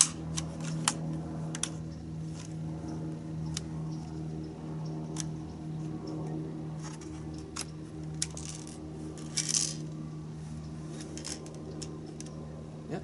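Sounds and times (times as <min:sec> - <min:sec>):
low hum: 0:00.0 - 0:13.0
metal pellets rattling in air rifle: 0:06.9 - 0:09.9, 0:11.0 - 0:12.3.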